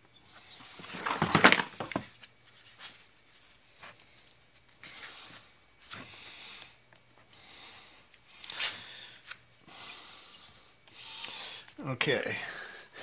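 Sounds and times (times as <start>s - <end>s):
plastic rubbing and scraping: 0.5s - 4.0s.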